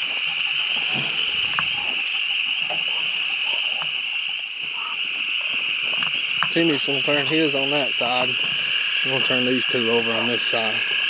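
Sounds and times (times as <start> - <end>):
faint clicks and rustles: 0.0 - 6.6
frogs trilling: 0.0 - 11.0.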